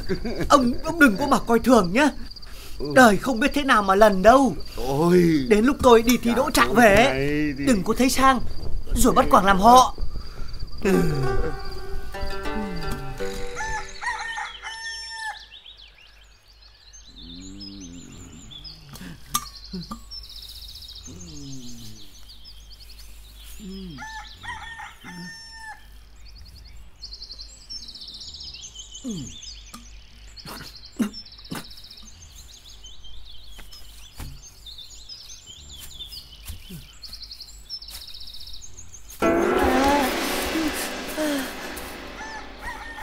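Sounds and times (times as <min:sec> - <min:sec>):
small birds chirping: 0:00.0 - 0:39.2
rooster crowing: 0:13.2 - 0:15.5, 0:24.0 - 0:25.9, 0:42.1 - 0:43.0.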